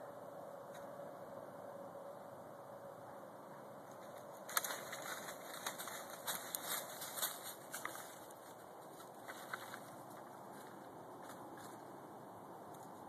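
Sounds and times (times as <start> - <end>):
dry sticks snapping and crackling: 3.9 - 11.8.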